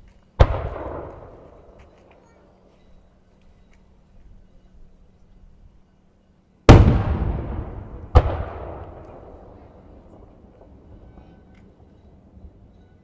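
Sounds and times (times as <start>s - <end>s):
fireworks bangs: 0.4s - 1.8s, 6.7s - 11.0s
rolling echo: 0.4s - 2.6s, 6.7s - 12.9s.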